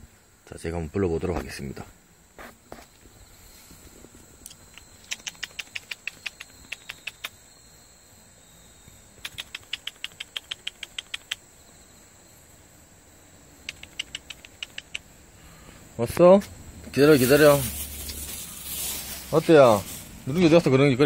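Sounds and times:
person making kissing squeaks: 4.7s - 7.4s, 9.2s - 11.4s, 13.6s - 15.1s.

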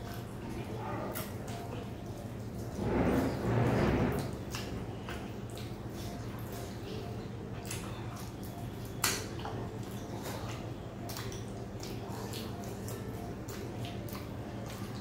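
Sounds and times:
chewing: 0.0s - 3.4s, 4.1s - 15.0s
fingers squishing food: 4.4s - 15.0s
small wet clicks: 7.5s - 15.0s.

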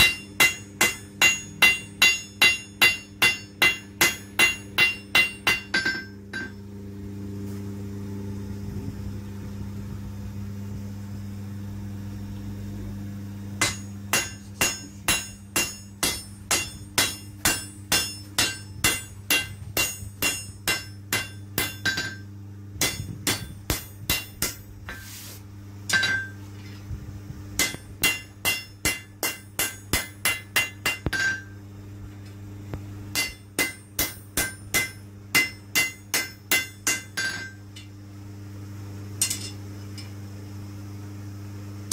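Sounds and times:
hammer blows on anvil: 0.0s - 6.6s, 13.6s - 25.0s, 27.6s - 31.5s, 33.1s - 37.6s
steady low hum: 0.0s - 41.9s.

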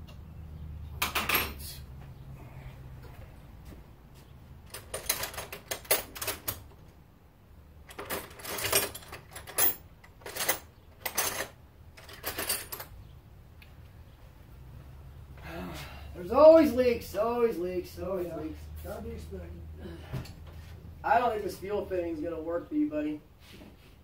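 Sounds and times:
metal tools clattering: 1.0s - 1.7s, 4.7s - 6.7s, 7.9s - 13.0s.

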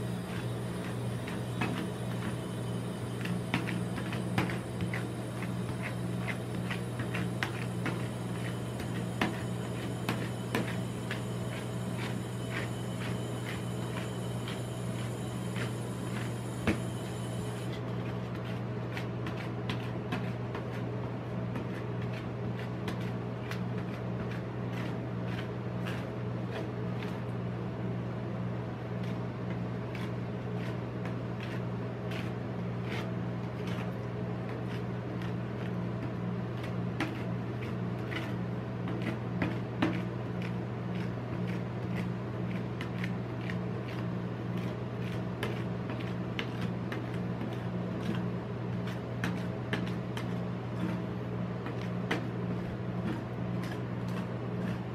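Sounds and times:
steady low hum: 0.0s - 21.4s.

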